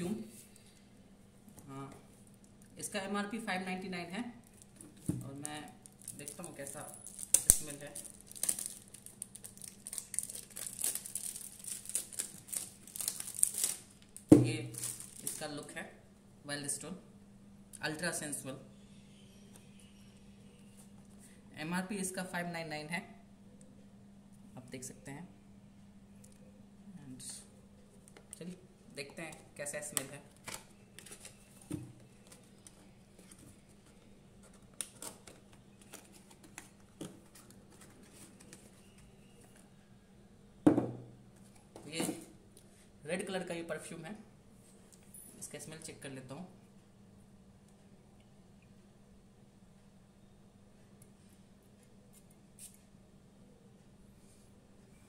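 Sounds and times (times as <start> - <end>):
low steady hum: 0.0 - 55.0
cellophane wrapper crinkling: 4.4 - 15.5.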